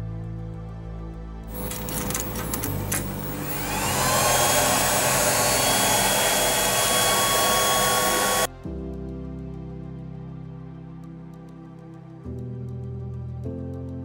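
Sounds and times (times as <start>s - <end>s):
clicks: 1.5s - 8.5s
electric air blower whining: 1.5s - 8.5s.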